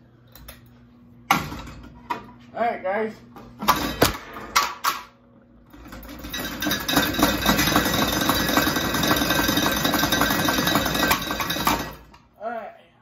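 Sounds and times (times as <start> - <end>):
ceiling fan rattling: 1.2 - 12.8.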